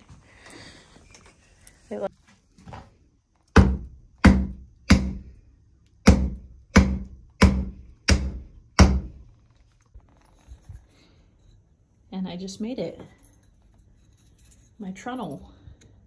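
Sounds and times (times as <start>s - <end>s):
wooden mallet heavy thunks: 3.6s - 5.3s, 6.1s - 9.2s.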